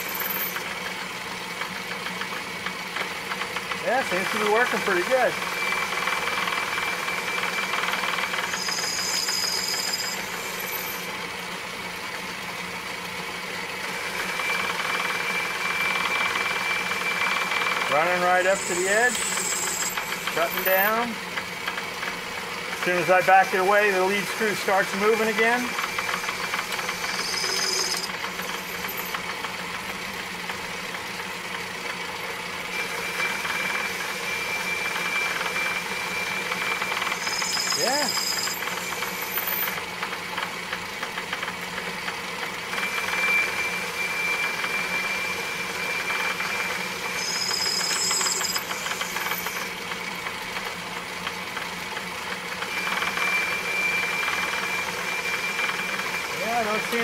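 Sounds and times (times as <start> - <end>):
feed motor high whine: 0.0 - 57.0
lathe mechanical whir: 0.0 - 57.0
thin high whine: 8.3 - 11.1, 17.9 - 21.1, 23.5 - 29.2, 32.8 - 39.8, 42.8 - 49.7.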